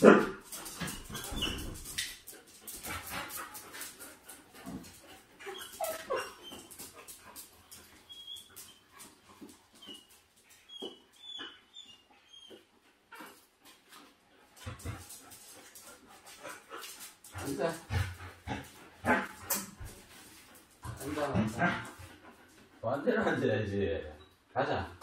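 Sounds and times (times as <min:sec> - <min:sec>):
paws scuffing on hard floor: 0:00.2 - 0:11.0, 0:12.4 - 0:22.7
dogs whining: 0:00.7 - 0:02.0, 0:05.3 - 0:12.8.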